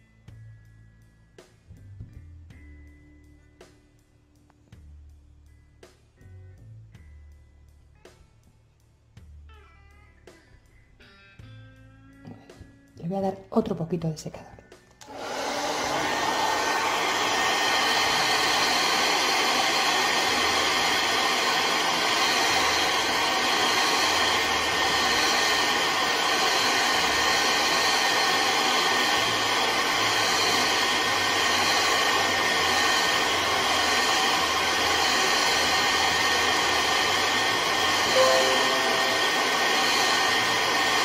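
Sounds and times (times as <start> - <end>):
hair dryer blowing: 15.0 - 41.0.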